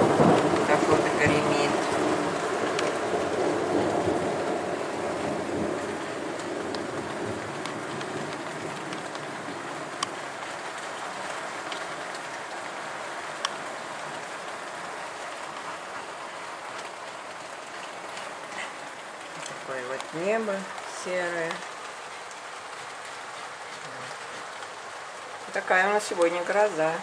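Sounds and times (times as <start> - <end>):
low thunder rumble: 0.0 - 9.7
heavy rain pouring: 0.0 - 27.0.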